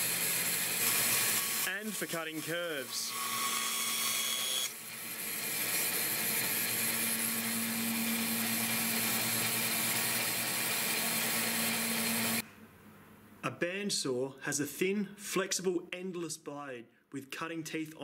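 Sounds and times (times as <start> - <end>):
bandsaw cutting plywood: 0.0 - 12.4
bandsaw running free humming: 0.0 - 12.4.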